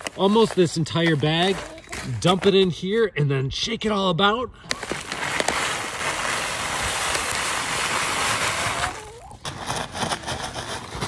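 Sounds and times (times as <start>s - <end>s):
grain pouring from paper sack: 4.7s - 11.0s.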